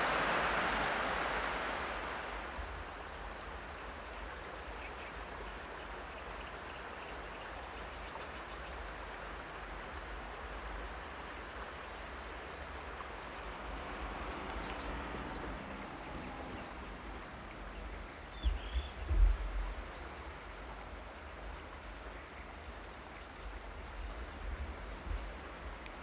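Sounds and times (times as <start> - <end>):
even hiss: 0.0 - 3.6.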